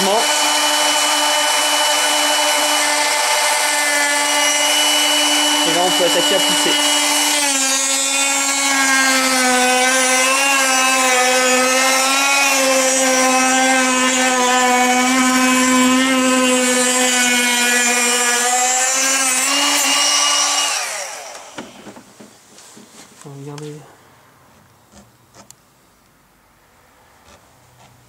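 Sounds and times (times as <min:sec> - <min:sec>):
electric motor whining: 0:00.0 - 0:21.8.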